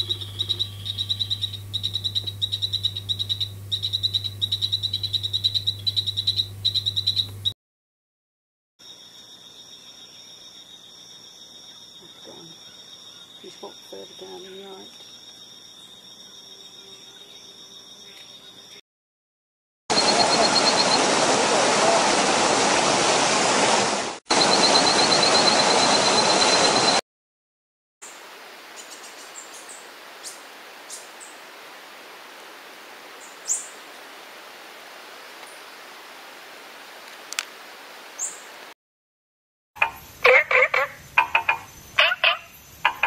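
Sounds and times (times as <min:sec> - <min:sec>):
high insect drone: 0:00.0 - 0:07.5
stream water rushing: 0:19.9 - 0:27.0.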